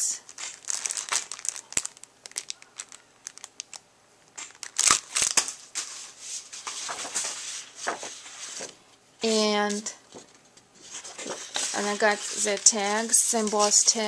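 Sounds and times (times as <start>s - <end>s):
plastic packaging crinkling: 0.2s - 6.0s
paper rustling: 0.3s - 3.5s, 4.4s - 14.0s.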